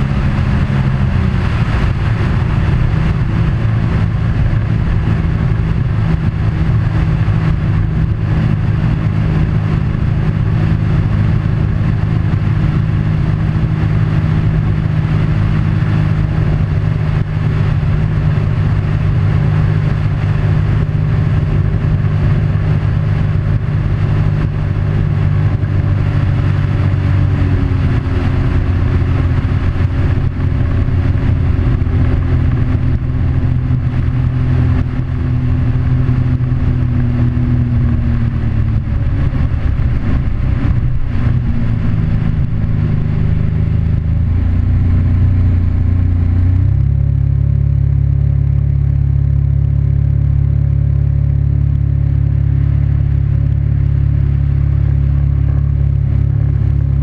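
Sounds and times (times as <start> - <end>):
road noise: 0.0 - 57.0
vehicle engine running: 0.0 - 57.0.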